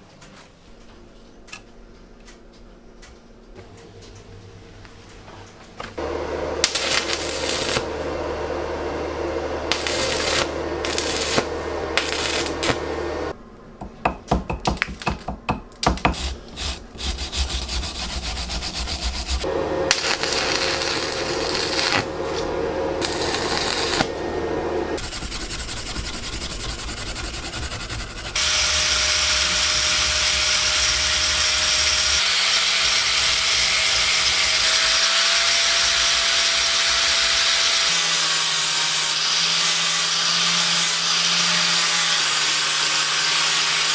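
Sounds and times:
angle grinder grinding: 6.0 - 13.3, 16.1 - 43.9
welding arc crackling and hissing: 6.6 - 8.2, 9.6 - 13.4, 16.0 - 24.2, 25.0 - 43.9.

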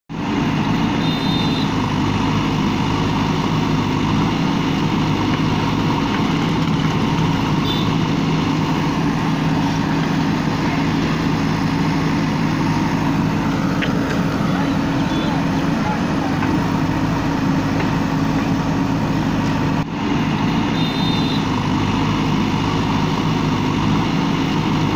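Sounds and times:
backhoe diesel engine running: 0.1 - 24.9.

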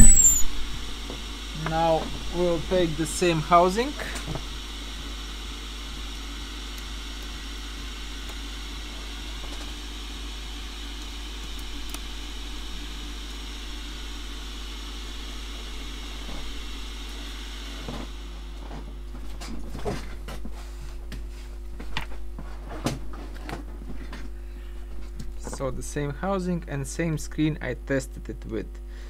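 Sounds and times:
electrical hum: 0.0 - 29.0.

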